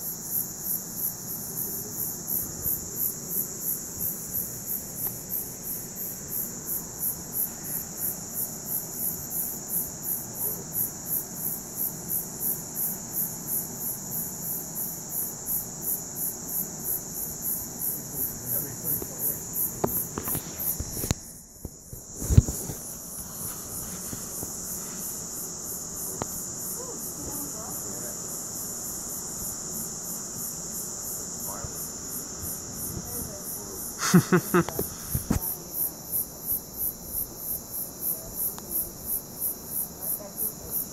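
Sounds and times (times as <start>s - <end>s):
night insects chirping: 0.0s - 40.9s.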